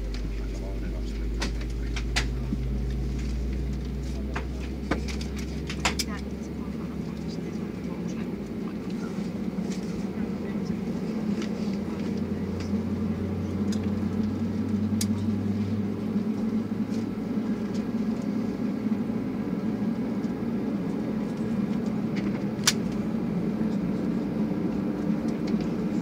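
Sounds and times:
aircraft cabin drone: 0.0s - 26.0s
low hum: 0.0s - 26.0s.

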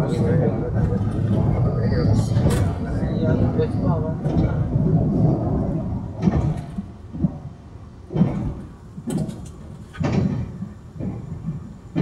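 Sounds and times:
train rolling rumble: 0.0s - 12.0s
heavy knocks and clatters: 6.2s - 7.4s, 8.1s - 12.0s.

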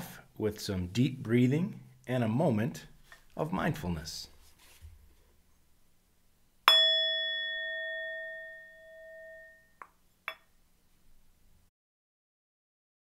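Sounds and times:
mindfulness bell ringing: 6.7s - 9.8s.

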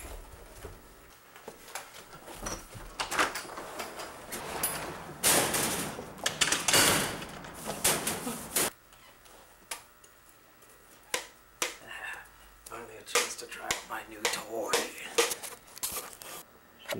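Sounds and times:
metal door scraping: 3.3s - 8.7s.

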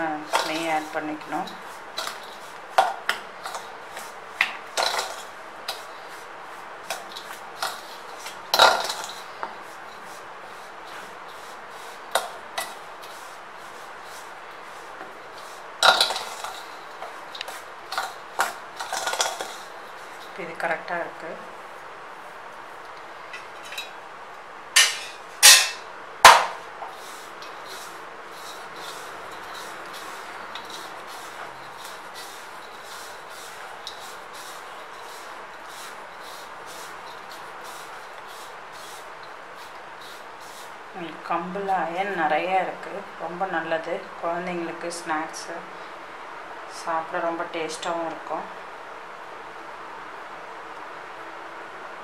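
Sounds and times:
hand kneading flour rustle: 0.0s - 23.3s, 26.5s - 45.4s
spoon scraping steel bowl: 0.2s - 6.2s, 6.8s - 14.3s, 15.3s - 20.4s, 26.9s - 40.7s.

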